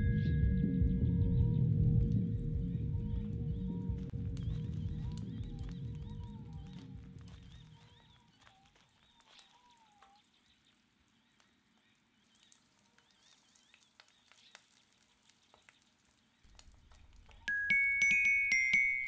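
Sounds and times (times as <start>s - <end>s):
faint wavering tone: 0.0s - 6.6s
low hum: 0.0s - 8.2s
eggs and bacon frying: 4.0s - 19.0s.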